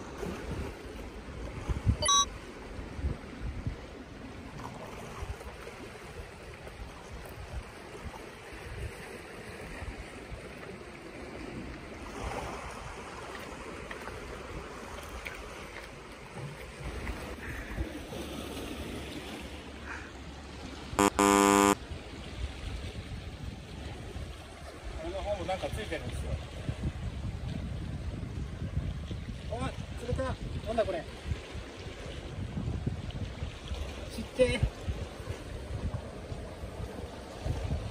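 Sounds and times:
sea surf on rocky shore: 0.0 - 27.5, 28.4 - 37.9
short loud buzzer tone: 2.0 - 2.3, 21.0 - 21.8.

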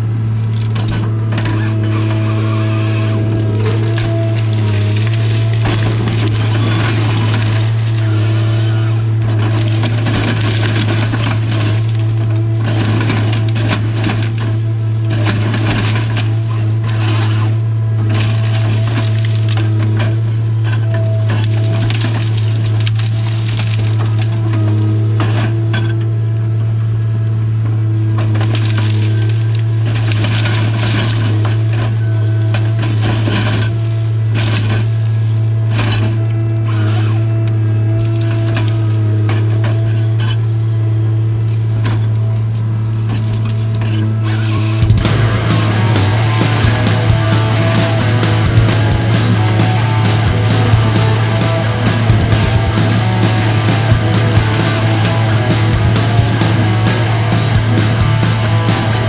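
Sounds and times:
engine droning: 0.0 - 59.0
wood cracking and crunching: 0.5 - 26.1, 28.2 - 40.5, 41.5 - 59.0
high machine whine: 44.8 - 59.0.

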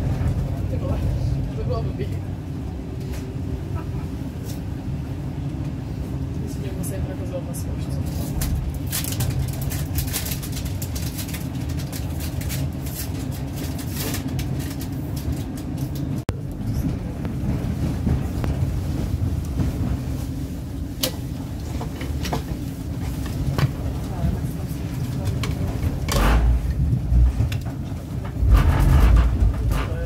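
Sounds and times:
train rumble inside carriage: 0.0 - 30.0
wheels clicking over rail joints: 21.0 - 30.0.

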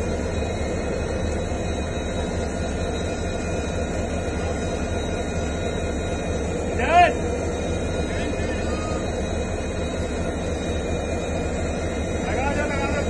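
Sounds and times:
diesel locomotive engine humming: 0.0 - 13.0.

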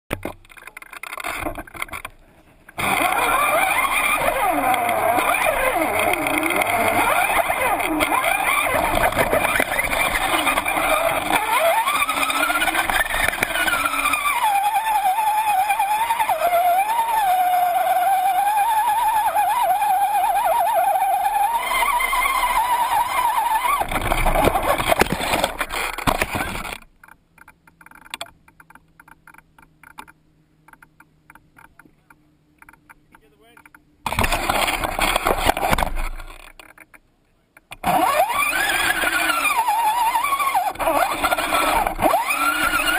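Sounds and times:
electric motor whining: 2.8 - 26.8, 37.8 - 42.9.

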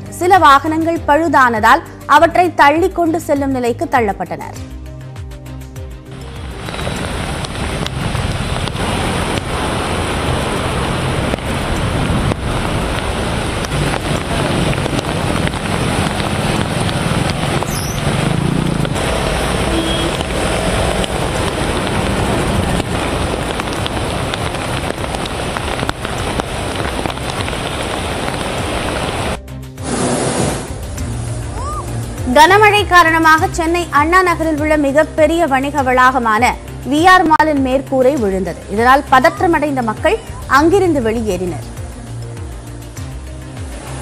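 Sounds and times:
steady rain: 6.0 - 36.0, 38.5 - 44.0
tyres splashing through water: 6.1 - 32.2
car and motorbike engines: 6.4 - 26.4.

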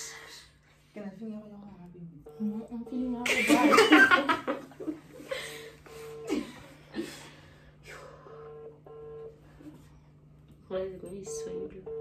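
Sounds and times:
phone ringback beeps: 5.9 - 6.3, 8.2 - 9.4, 11.3 - 12.0.

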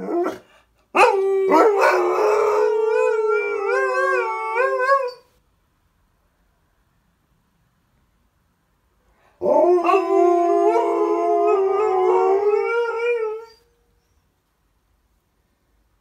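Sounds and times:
dogs howling together: 1.0 - 5.2, 9.4 - 13.6.

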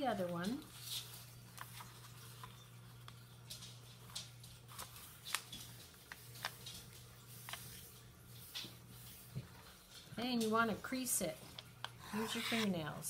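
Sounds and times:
low steady hum: 0.0 - 13.0
paper rustling and crinkling: 0.4 - 9.7.

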